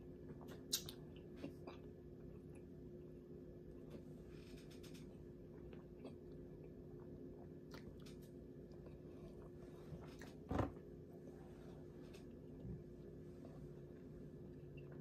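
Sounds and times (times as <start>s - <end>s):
steady low hum: 0.0s - 15.0s
person chewing food: 0.2s - 3.9s, 5.2s - 10.4s.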